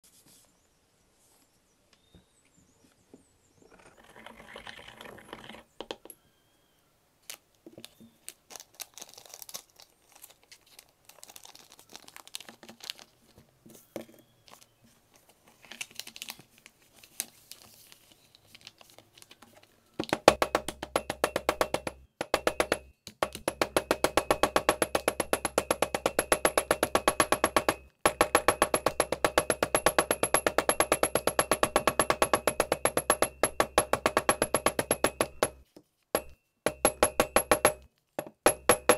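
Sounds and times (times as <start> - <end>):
paper being folded: 7.2 - 20.2
hammer tapping: 20.0 - 38.9
pestle grinding in mortar: 20.1 - 35.6, 36.2 - 38.9.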